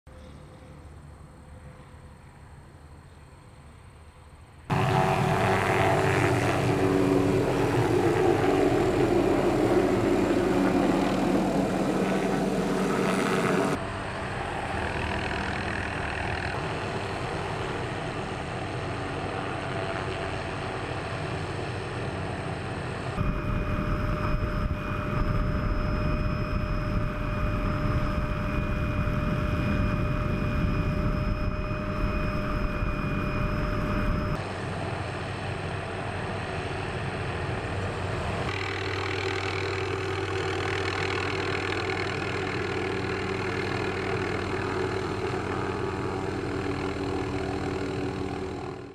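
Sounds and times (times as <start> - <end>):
helicopter hovering: 4.7 - 48.9.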